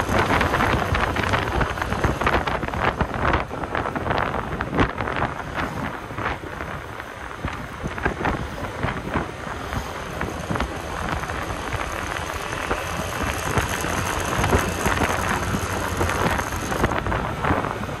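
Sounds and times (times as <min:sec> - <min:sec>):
tyre noise on road: 0:00.0 - 0:18.0
wind buffeting microphone: 0:00.0 - 0:18.0
scooter engine running: 0:10.0 - 0:17.3.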